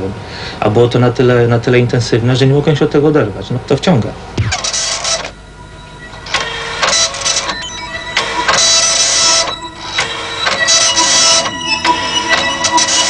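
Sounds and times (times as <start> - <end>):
dot-matrix printer printing: 4.4 - 5.4, 6.0 - 13.0.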